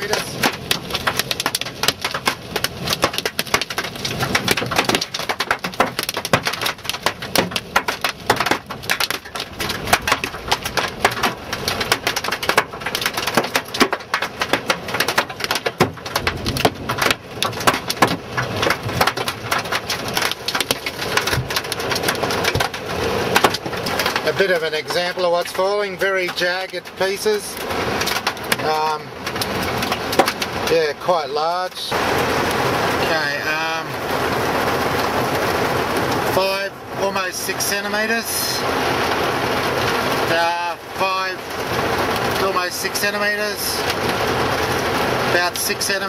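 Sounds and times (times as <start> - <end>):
hail clattering on car roof: 0.0 - 46.0
heavy rain hiss: 18.6 - 46.0.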